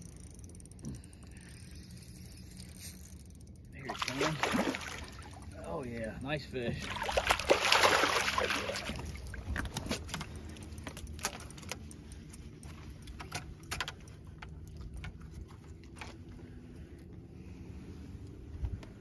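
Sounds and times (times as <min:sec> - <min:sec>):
water splashing: 0:03.9 - 0:05.6, 0:06.8 - 0:10.2
fish flopping on deck: 0:06.8 - 0:11.5.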